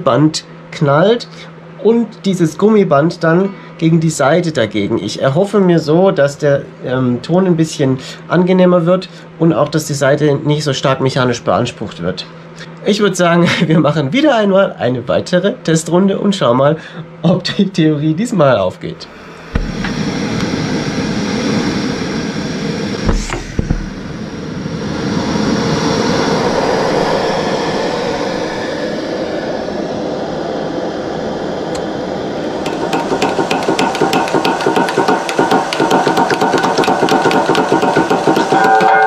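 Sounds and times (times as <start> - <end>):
gas burner hissing: 19.0 - 39.0
rapid irregular knocking: 32.6 - 39.0.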